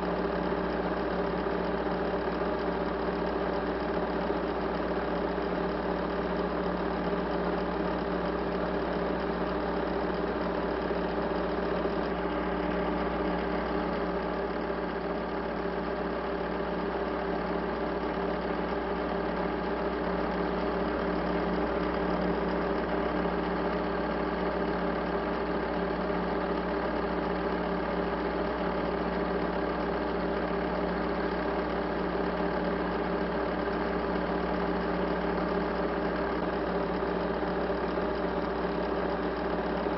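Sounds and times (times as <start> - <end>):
steady mechanical hum: 0.0 - 39.9.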